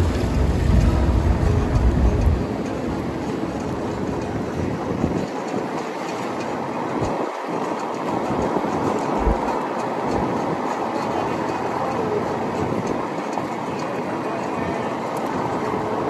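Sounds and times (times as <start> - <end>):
low bumps: 0.0 - 5.2, 8.5 - 10.3
car road and wind noise: 0.0 - 16.0.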